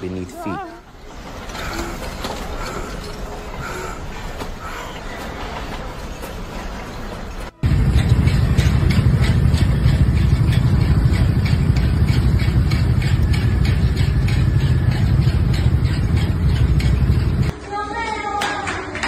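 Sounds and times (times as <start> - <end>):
idling engines rumbling: 7.6 - 17.5
rapid ticking: 7.6 - 17.5.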